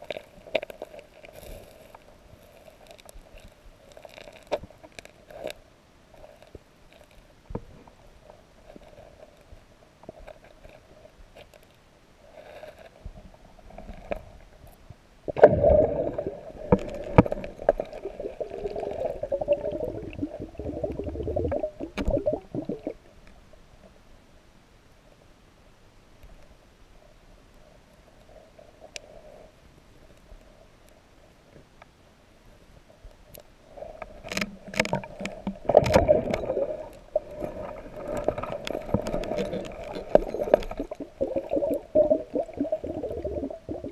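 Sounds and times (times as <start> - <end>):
underwater stones clicking: 15.3 - 23.4, 33.4 - 43.9
low underwater noise with knocks: 34.3 - 36.8.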